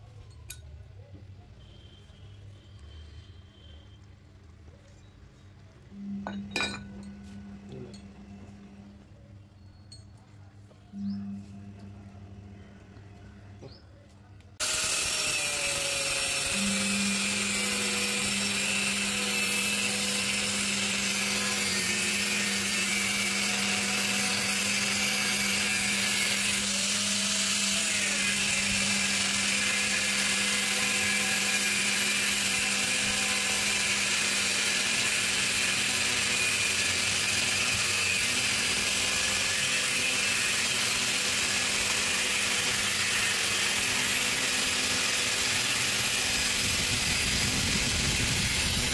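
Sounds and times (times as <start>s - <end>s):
angle grinder cutting steel: 5.9s - 9.1s, 14.6s - 48.9s.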